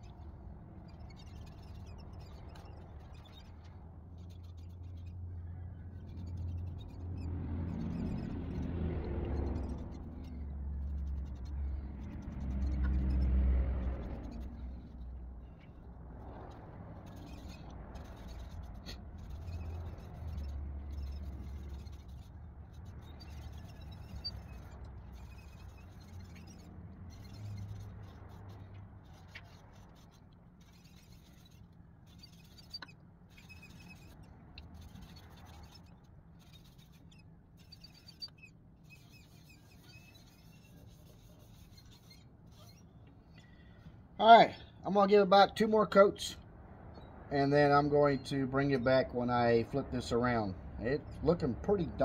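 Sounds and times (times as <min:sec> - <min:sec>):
cloth pad rubbing wood: 0:11.0 - 0:42.9.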